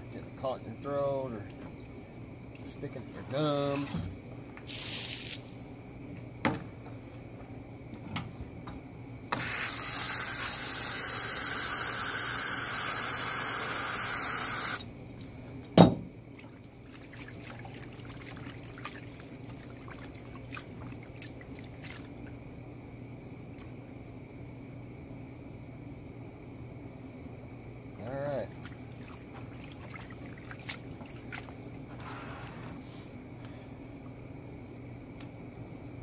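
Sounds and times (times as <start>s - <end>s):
hose spraying water into tub: 4.6s - 5.7s, 9.3s - 15.4s, 16.3s - 22.2s, 28.3s - 32.8s
loud sharp knock: 15.8s - 16.1s
hands splashing water: 16.4s - 22.2s, 28.5s - 31.7s.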